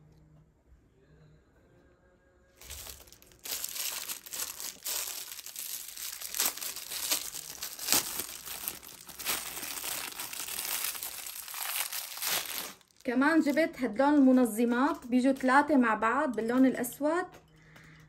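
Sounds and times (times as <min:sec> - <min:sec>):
plastic packaging crinkling: 0:02.6 - 0:15.2.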